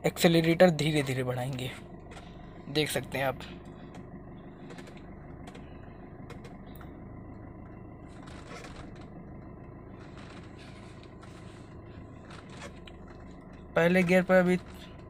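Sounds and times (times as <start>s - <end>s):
car engine at low revs: 0.0s - 15.0s.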